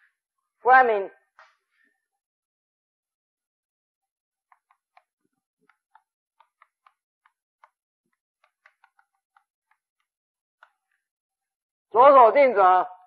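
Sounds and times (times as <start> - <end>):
chalk tapping on blackboard: 4.4 - 11.0.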